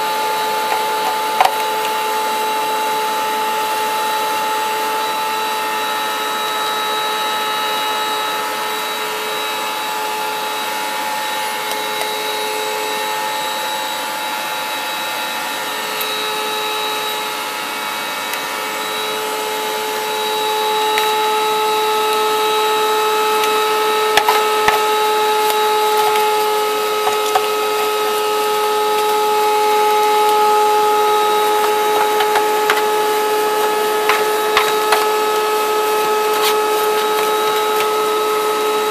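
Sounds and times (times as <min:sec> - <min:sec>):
vacuum cleaner motor whine: 0:00.0 - 0:38.9
brush scrubbing plastic: 0:00.6 - 0:02.0, 0:19.9 - 0:38.9.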